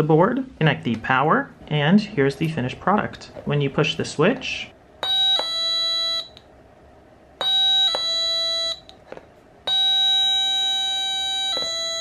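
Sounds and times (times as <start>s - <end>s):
two-tone electronic doorbell chime: 5.0s - 6.4s, 7.4s - 8.9s, 9.7s - 12.0s.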